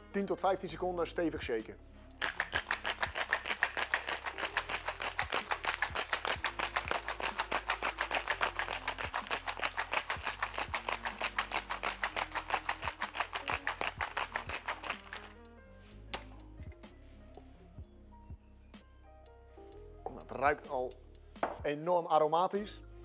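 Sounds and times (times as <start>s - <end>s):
faint background music: 0.0s - 23.0s
ice rattling in cocktail shaker: 2.2s - 15.4s.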